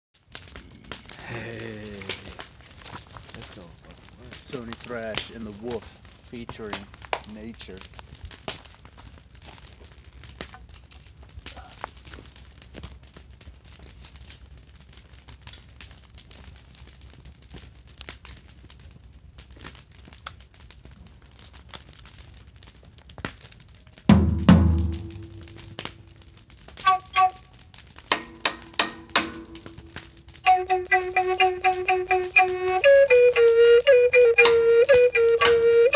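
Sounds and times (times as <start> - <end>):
campfire crackling: 0.1 - 35.9
metal drum ringing strikes: 28.1 - 29.6
music beat: 28.1 - 35.9.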